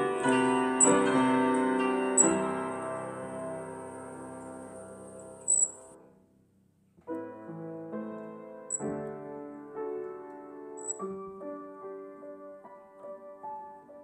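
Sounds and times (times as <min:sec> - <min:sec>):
piano chords: 0:00.0 - 0:06.0, 0:07.0 - 0:14.0
high-pitched chirp: 0:00.2 - 0:01.1, 0:02.1 - 0:03.0, 0:03.9 - 0:05.9, 0:10.8 - 0:11.0.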